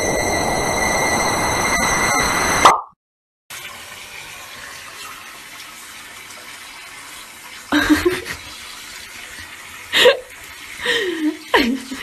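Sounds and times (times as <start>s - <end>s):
water running from sink tap: 3.5s - 12.0s.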